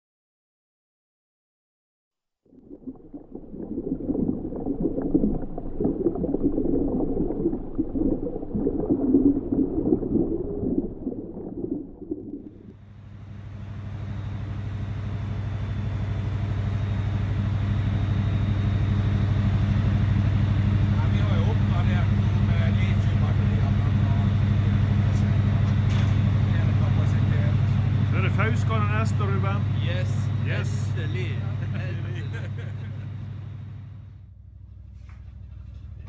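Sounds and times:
underwater gurgling churning: 2.5 - 12.7
boat engine humming: 2.6 - 36.0.

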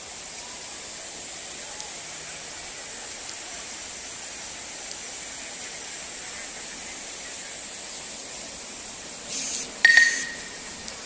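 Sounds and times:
waterfall rushing over rocks: 0.0 - 11.0
faint ticks: 9.4 - 11.0.

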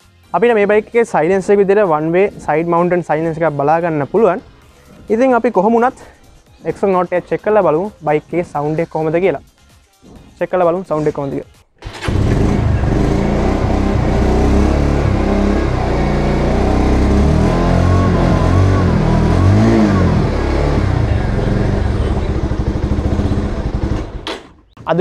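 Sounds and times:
motorcycle engine revving and idling: 11.8 - 24.5.

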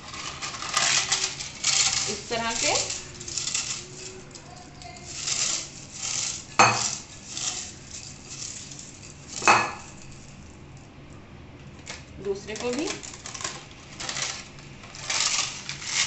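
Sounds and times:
crisp papad crunching by hand: 0.0 - 8.7, 12.0 - 16.0.

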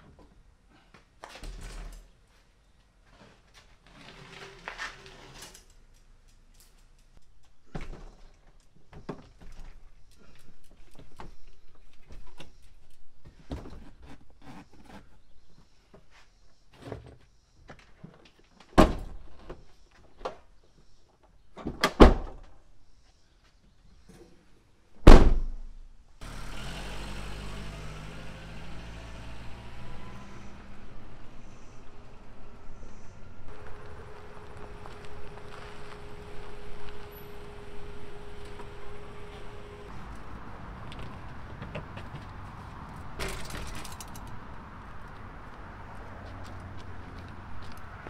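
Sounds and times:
bicycle rattles and clunks: 40.9 - 44.4.

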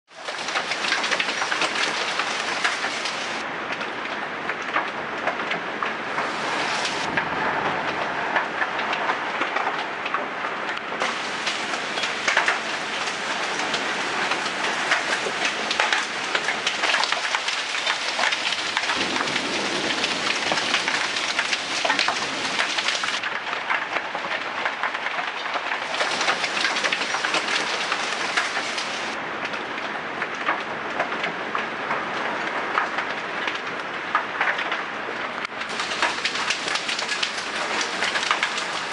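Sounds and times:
hailstones striking: 0.1 - 3.4, 11.0 - 29.2, 35.7 - 38.9
rain hissing: 0.1 - 3.4, 6.1 - 9.7, 10.9 - 23.3, 25.6 - 29.2, 35.6 - 38.9.

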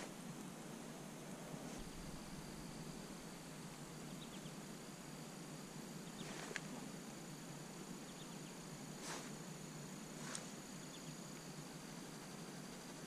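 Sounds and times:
soft hiss: 0.0 - 13.0
thin high hum: 0.0 - 13.0.

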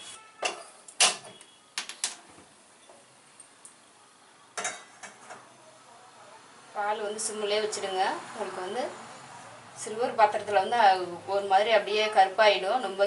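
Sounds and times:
metal pot clinking on grate: 4.6 - 5.4.

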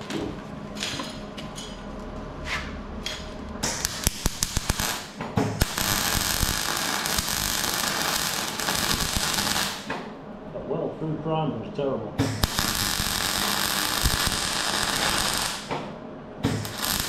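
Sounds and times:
arc welding crackle and hiss: 3.1 - 10.0, 12.2 - 17.0
sharp crackling bursts: 3.6 - 10.0, 12.4 - 15.7, 16.6 - 17.0.

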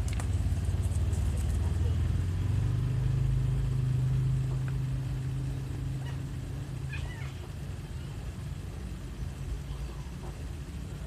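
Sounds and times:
low engine hum: 0.0 - 11.0.

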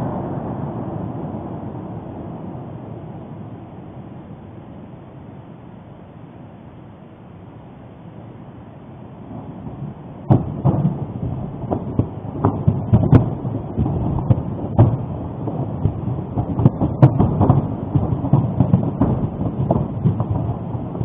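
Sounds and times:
deep volcanic rumble: 0.0 - 5.0, 9.2 - 21.0
sharp cracks and bangs: 10.2 - 21.0.

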